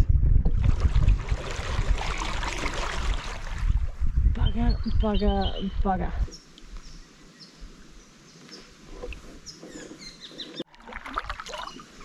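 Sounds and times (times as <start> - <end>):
birds chirping: 4.4 - 10.7
faint outdoor background noise: 4.4 - 12.0.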